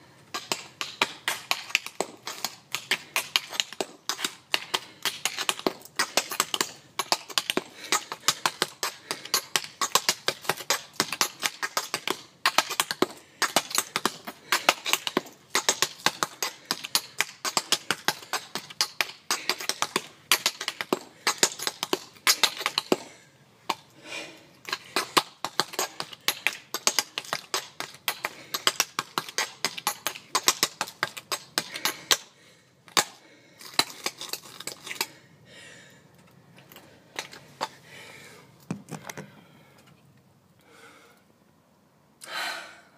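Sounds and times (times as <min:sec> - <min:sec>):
tap shoes clicking on pavement: 0:00.3 - 0:23.1, 0:24.6 - 0:32.3, 0:32.9 - 0:35.1.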